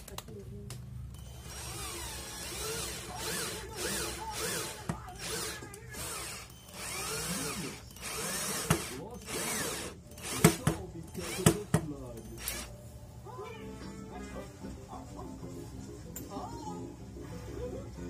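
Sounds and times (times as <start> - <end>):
electric drill drilling: 1.3 - 11.6, 12.4 - 12.7.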